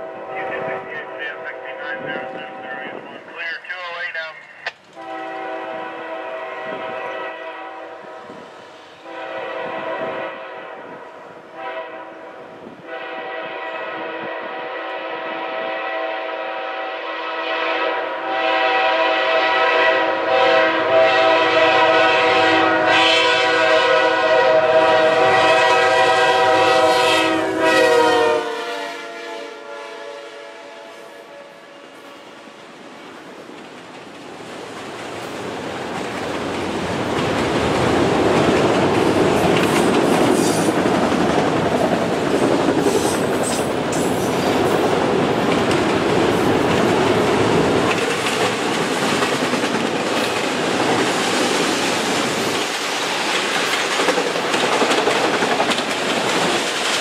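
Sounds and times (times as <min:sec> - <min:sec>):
rail cars rolling by: 0:00.0 - 0:29.9, 0:30.6 - 0:57.0
locomotive air horn blowing: 0:05.0 - 0:08.4, 0:09.0 - 0:32.1.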